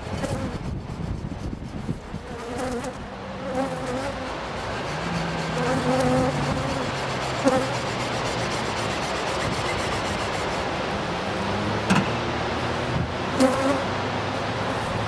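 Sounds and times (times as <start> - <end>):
wind on microphone: 0.0 - 3.2, 4.2 - 10.8, 12.8 - 13.3
honey bees buzzing: 1.9 - 11.8, 12.5 - 15.0.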